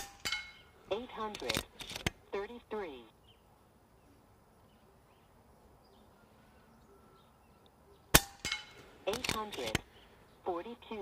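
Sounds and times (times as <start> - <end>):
faint bird chirps: 3.1 - 8.2.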